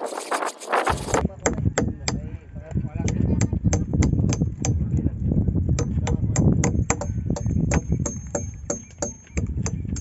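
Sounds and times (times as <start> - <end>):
hammers striking steel chisels: 5.8 - 10.0.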